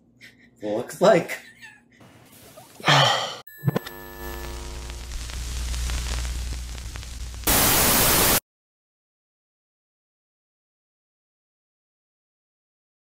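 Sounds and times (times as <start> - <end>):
glitchy electronic tones: 3.5 - 8.4
low hum: 3.6 - 8.3
tv static hiss: 3.7 - 8.4.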